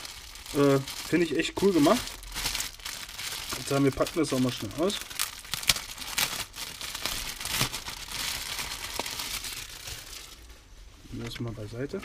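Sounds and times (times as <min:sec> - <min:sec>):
plastic bag crinkling: 0:00.0 - 0:10.5.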